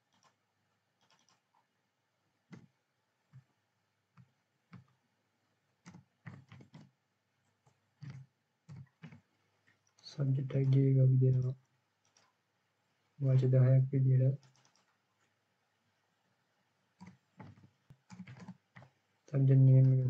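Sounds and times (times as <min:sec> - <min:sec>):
keyboard and mouse clicks: 0:00.0 - 0:00.4, 0:01.0 - 0:01.6, 0:05.8 - 0:06.9, 0:07.6 - 0:12.4, 0:14.4 - 0:15.0, 0:17.0 - 0:18.9.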